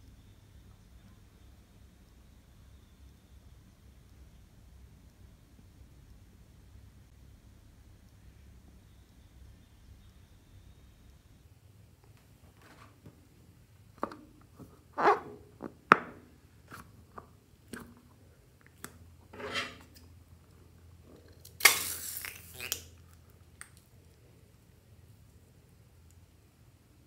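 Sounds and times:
balloon squeaking and crinkling: 0:14.9 - 0:15.5, 0:21.6 - 0:22.9.

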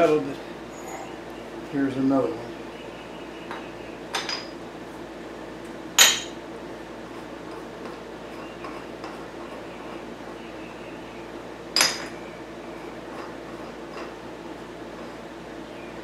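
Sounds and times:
steady hum: 0:00.0 - 0:16.0
metal clinking: 0:06.0 - 0:06.4
ringing metal clank: 0:06.0 - 0:06.4, 0:11.8 - 0:12.2.

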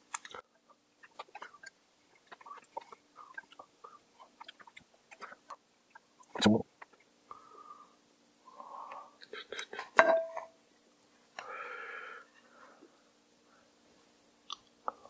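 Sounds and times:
wet chewing: 0:01.0 - 0:07.1.

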